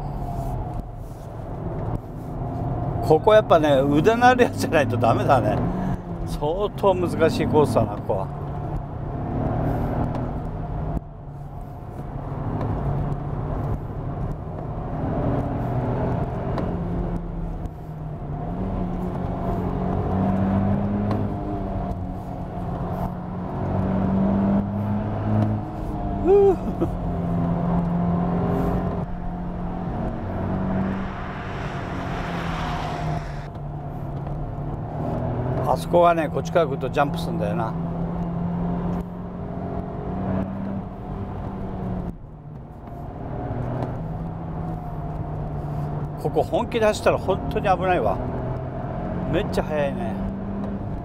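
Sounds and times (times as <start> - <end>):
road noise: 0.0 - 51.0
car engine running: 25.3 - 34.9.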